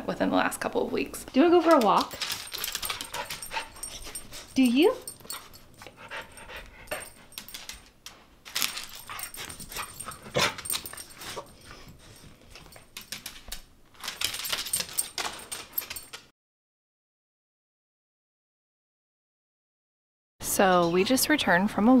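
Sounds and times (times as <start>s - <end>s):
dog claws clicking and scuffling: 1.4s - 16.3s.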